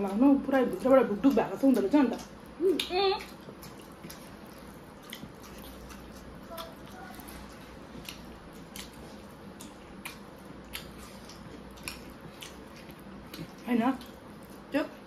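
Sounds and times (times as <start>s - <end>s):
wet mouth smacks and chewing: 2.8s - 7.0s, 7.9s - 14.7s.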